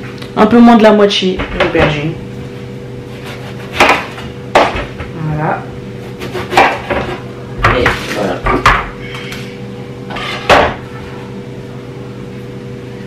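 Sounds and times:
knife cutting on wooden board: 3.1 - 4.2.

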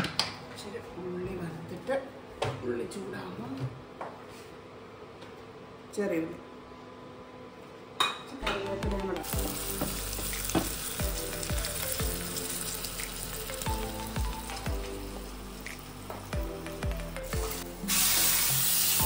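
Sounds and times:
onions sizzling in oil: 9.2 - 19.0.

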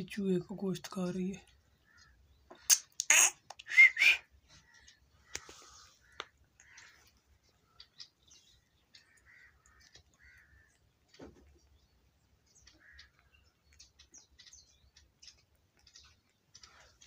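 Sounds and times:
faint short bird calls: 1.8 - 8.1, 8.9 - 10.8.

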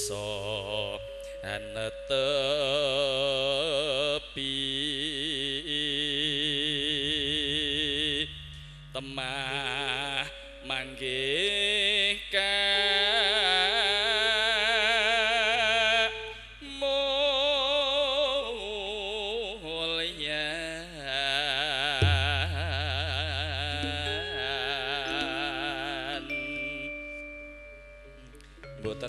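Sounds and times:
low held accompaniment: 0.0 - 5.3, 6.1 - 13.6, 22.0 - 29.0
person singing with vibrato: 0.0 - 29.0.

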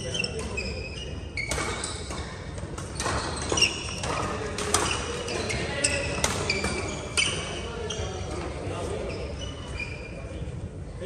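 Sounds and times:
shoes squeaking on court floor: 0.0 - 10.4
racket hitting shuttlecock: 1.4 - 5.2.

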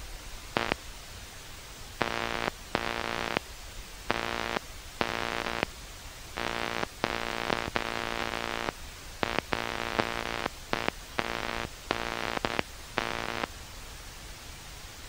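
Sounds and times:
radio static hiss: 0.0 - 14.0
radio interference buzzing: 0.6 - 0.8, 2.0 - 3.4, 4.1 - 5.7, 6.3 - 13.5.

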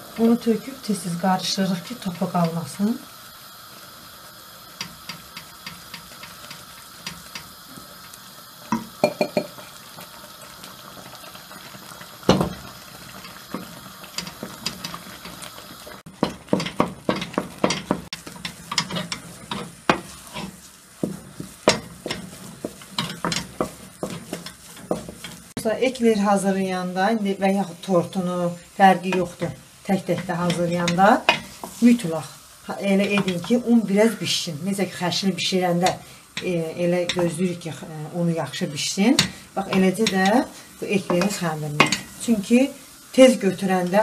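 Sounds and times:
utensil scraping and knocking pot: 8.7 - 9.7, 12.3 - 25.6, 29.0 - 32.0, 32.9 - 33.7, 35.8 - 37.4, 39.1 - 42.3.

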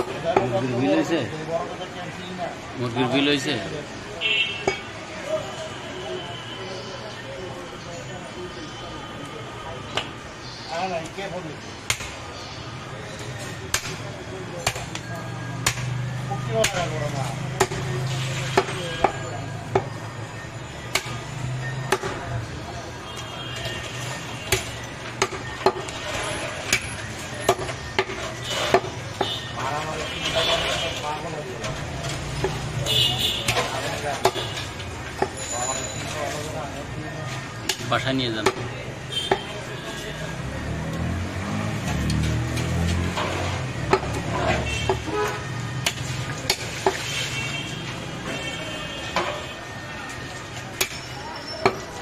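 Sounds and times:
cleaver chopping meat and bone: 11.8 - 12.2, 13.7 - 14.0, 14.6 - 16.0, 16.6 - 17.9, 18.5 - 20.0, 20.9 - 22.2, 24.5 - 26.0, 26.7 - 29.5, 33.4 - 34.6, 35.2 - 35.4, 37.6 - 38.7, 43.8 - 45.1, 45.8 - 47.0, 50.7 - 51.0.

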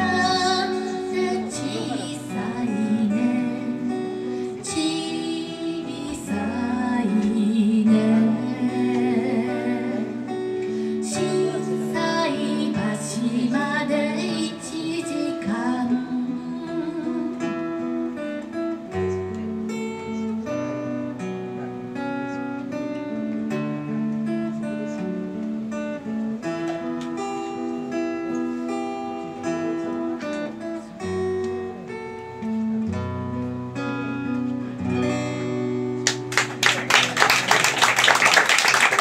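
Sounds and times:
acoustic guitar strumming: 0.0 - 37.9.

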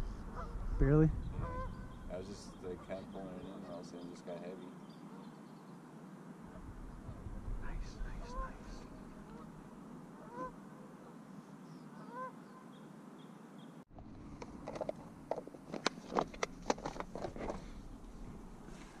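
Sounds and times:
waterfowl calling: 0.0 - 0.7, 1.3 - 4.2, 4.9 - 5.6, 8.0 - 11.2, 11.8 - 12.8
small birds chirping: 0.4 - 6.1, 10.2 - 13.9
fishing gear clicks and knocks: 14.4 - 17.7.

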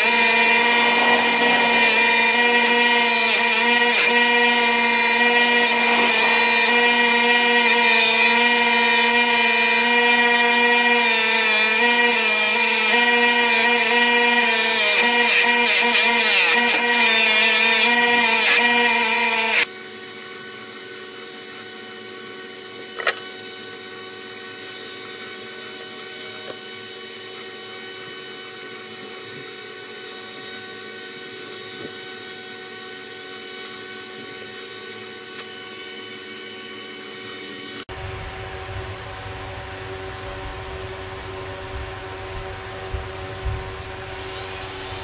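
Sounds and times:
knife scraping on buffing wheel: 0.0 - 10.3
bench buffer motor humming: 0.0 - 19.6.

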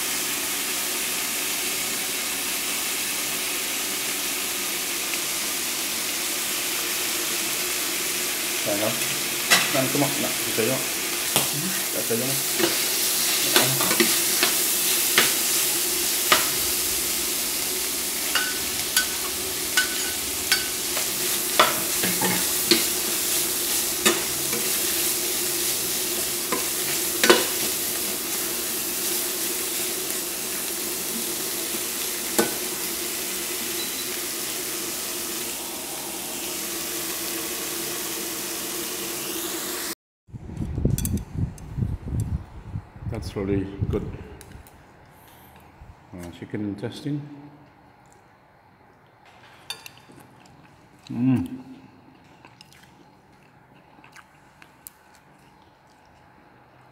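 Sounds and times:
food sizzling in a pan: 0.0 - 40.0.

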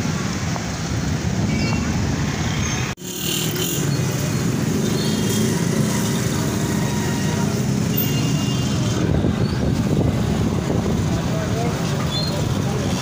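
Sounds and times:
motorcycle and rickshaw engines: 0.0 - 13.0
people's voices: 9.2 - 13.0.

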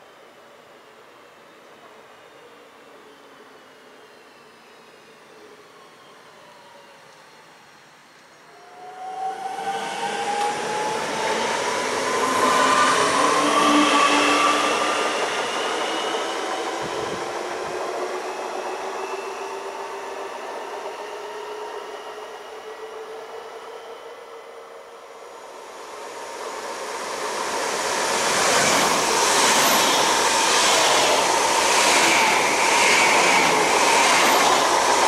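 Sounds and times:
train rolling past: 8.5 - 22.3, 25.3 - 35.0.

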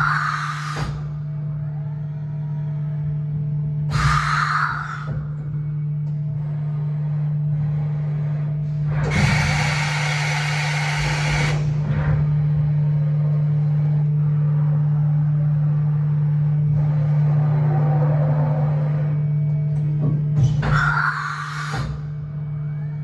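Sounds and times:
machine low hum: 0.0 - 23.0.

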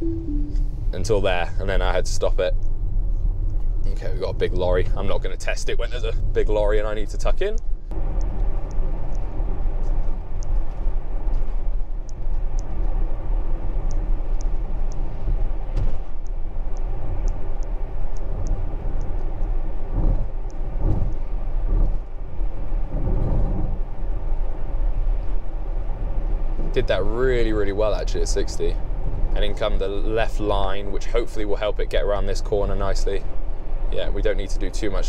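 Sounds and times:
tyre and road rumble: 0.0 - 35.0
faint high ticks: 2.5 - 3.7, 7.4 - 13.0, 13.8 - 15.5, 16.1 - 22.2.

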